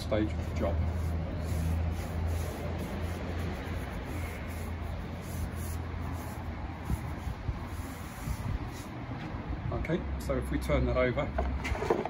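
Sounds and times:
paintbrush strokes on wood: 0.0 - 9.2.

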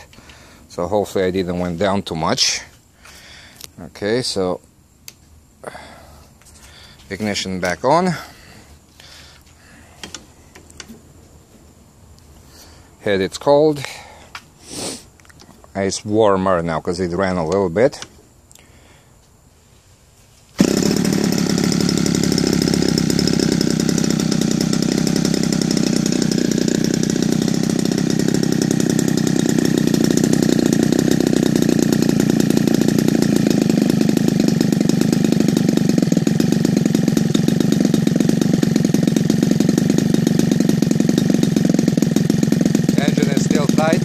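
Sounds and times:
model aircraft engine running: 20.6 - 44.0.

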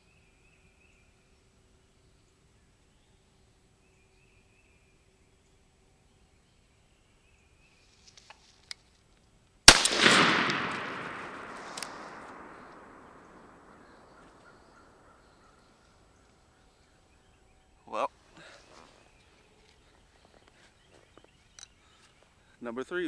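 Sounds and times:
shotgun blast with echo: 9.7 - 14.8
faint clicks: 10.5 - 14.5.

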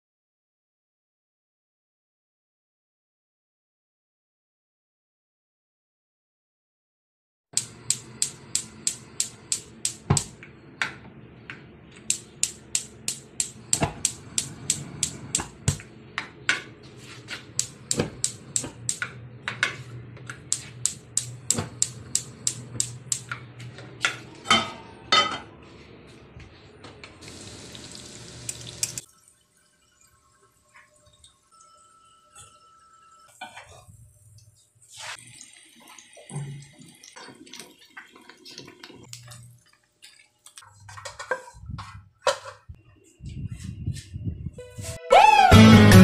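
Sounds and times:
stove igniter clicking: 7.6 - 10.4, 12.0 - 15.9, 17.6 - 19.1, 20.5 - 23.4.

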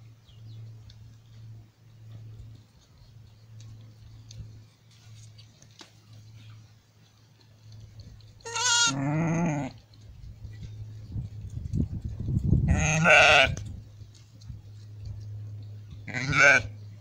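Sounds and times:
steady low hum: 0.0 - 17.0
sheep bleating: 8.4 - 9.8, 12.7 - 13.6, 16.0 - 16.8.

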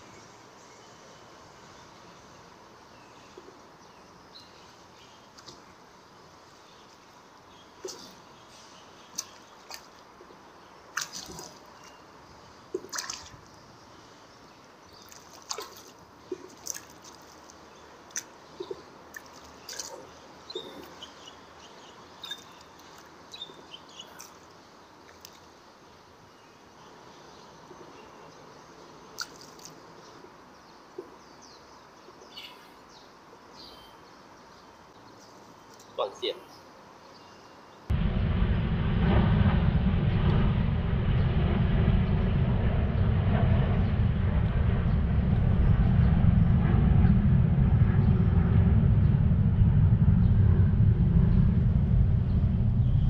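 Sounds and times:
water dripping and splashing: 9.1 - 10.3, 10.9 - 12.0, 12.7 - 13.7, 14.9 - 21.0, 22.2 - 25.5, 29.1 - 30.1.

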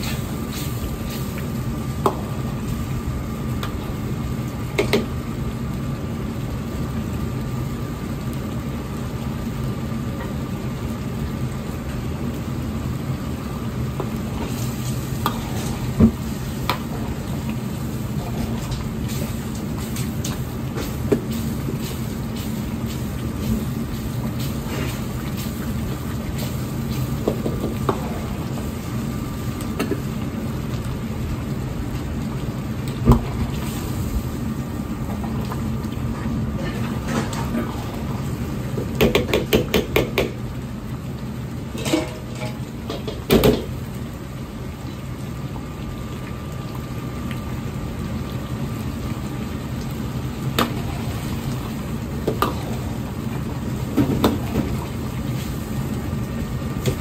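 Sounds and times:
steady hum: 0.0 - 43.0
sauce bubbling in a wok: 0.0 - 57.0.

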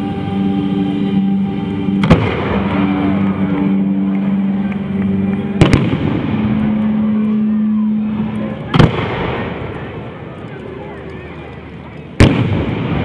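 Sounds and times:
steady low drone: 0.0 - 13.0
fireworks bursting with bangs: 1.9 - 3.8, 5.3 - 10.8, 12.1 - 13.0.

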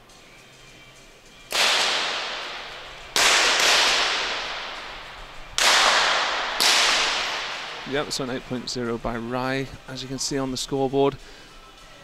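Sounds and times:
pistol shots echoing: 1.5 - 8.6.

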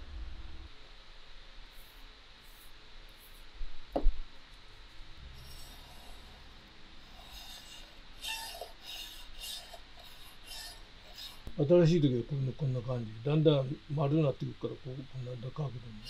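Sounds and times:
blade scraping on whetstone: 5.3 - 11.5.

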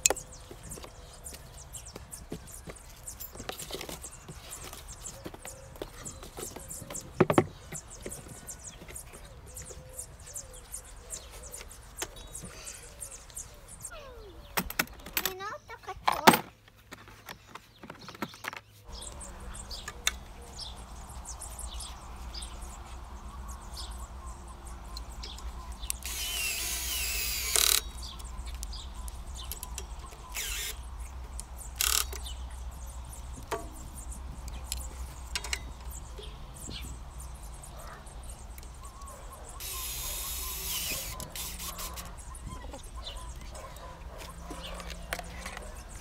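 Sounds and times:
cordless drill driving screws: 26.0 - 27.9, 30.3 - 30.8, 39.6 - 42.1.

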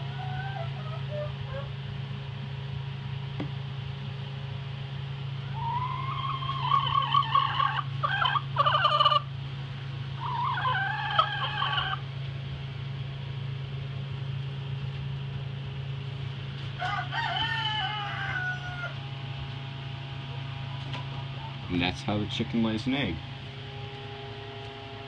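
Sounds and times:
hen calling: 0.0 - 1.8, 5.4 - 9.3, 10.2 - 12.0
low hum: 0.0 - 25.0.

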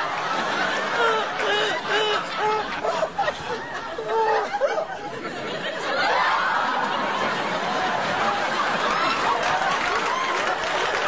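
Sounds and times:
woman laughing tearfully: 0.5 - 5.2.

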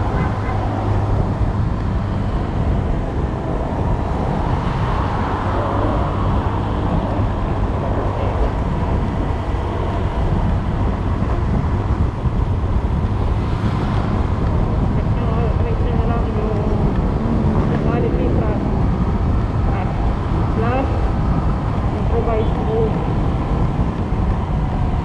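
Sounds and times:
wind rumbling on microphone: 0.0 - 25.0.

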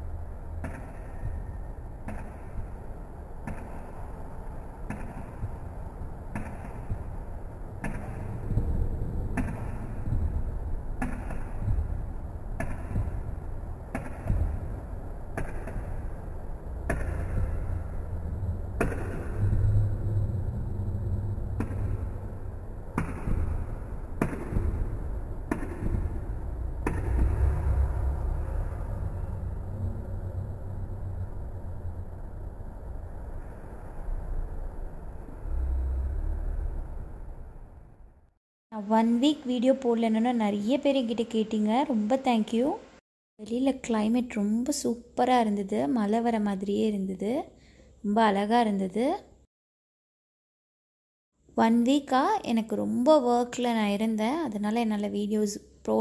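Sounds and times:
low rumble: 16.2 - 38.4.

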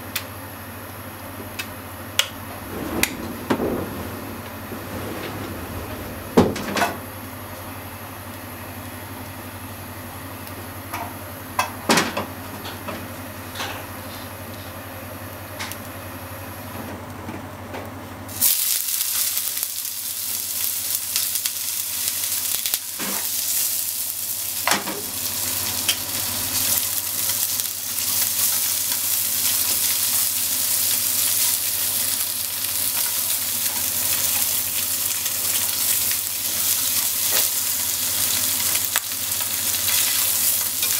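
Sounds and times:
low steady hum: 1.0 - 11.7
sausages sizzling in hot oil: 18.3 - 40.9.

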